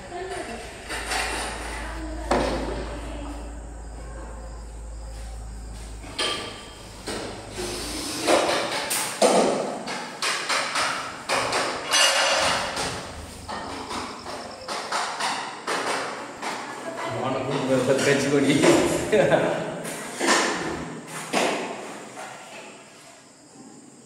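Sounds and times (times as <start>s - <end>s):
low hum: 0.0s - 9.2s, 10.9s - 14.7s
knocking and tapping: 8.2s - 16.6s.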